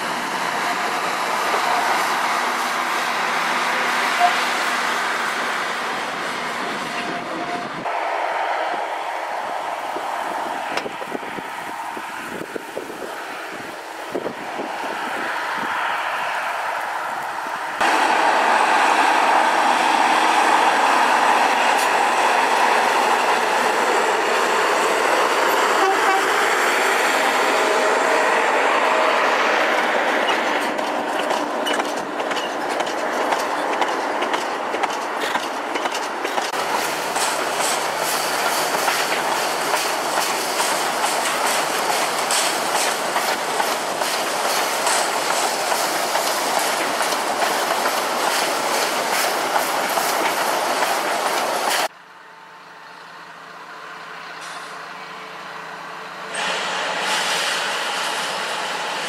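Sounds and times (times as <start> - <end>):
train wheels clicking over rail joints: 9.8 - 11.2, 29.7 - 51.9.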